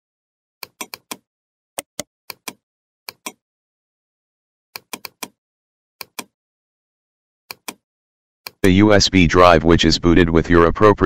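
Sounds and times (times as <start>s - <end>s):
computer mouse clicks: 0.6s - 3.4s, 4.8s - 5.4s, 6.0s - 6.4s, 7.5s - 7.8s.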